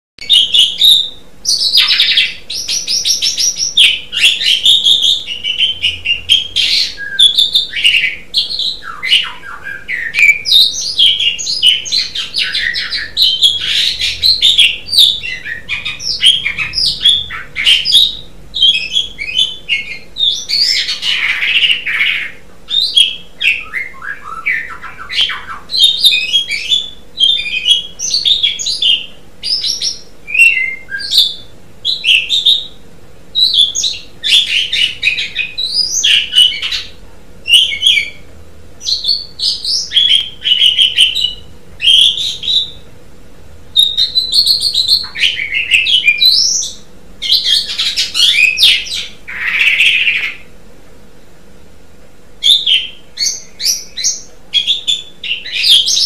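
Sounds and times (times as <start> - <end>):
starling singing: 0.2 - 42.9, 43.8 - 50.5, 52.4 - 56.0.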